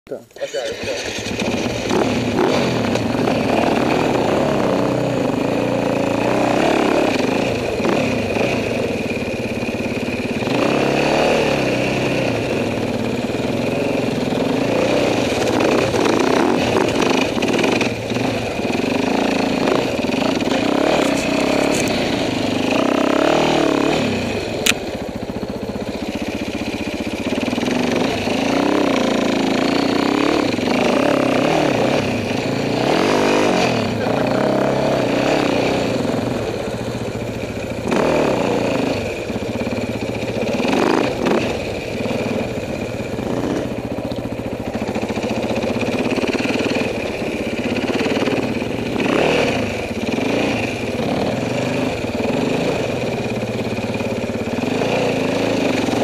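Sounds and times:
dirt bike engine revving: 0.4s - 56.0s
sharp click: 24.6s - 24.8s.

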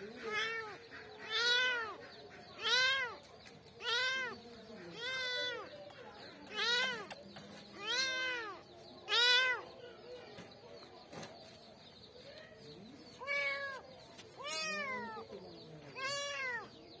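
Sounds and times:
kitten meowing: 16.0s - 16.7s.

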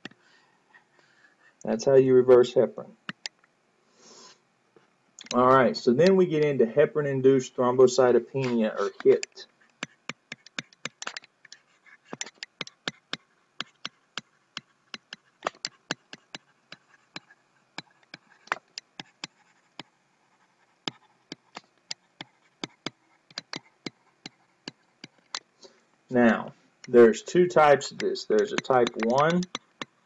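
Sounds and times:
stylus tapping on pen tablet: 3.0s - 3.4s, 9.0s - 19.9s, 20.8s - 25.5s, 27.8s - 30.0s.

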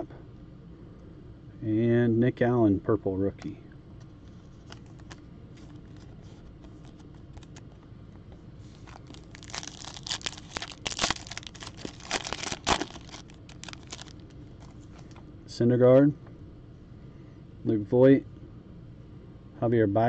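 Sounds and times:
foil wrapper crinkling and tearing: 4.6s - 7.6s, 8.7s - 15.2s.

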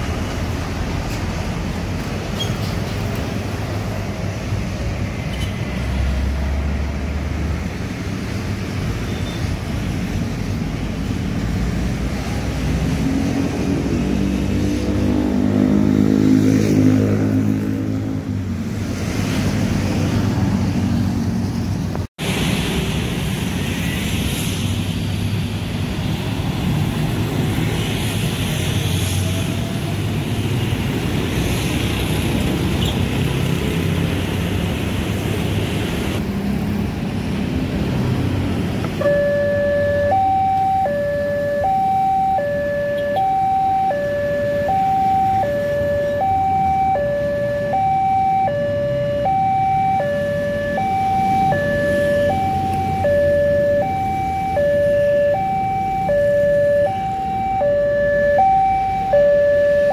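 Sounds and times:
motorbikes and cars passing: 0.0s - 59.9s
two-tone crossing alarm: 39.0s - 59.9s.

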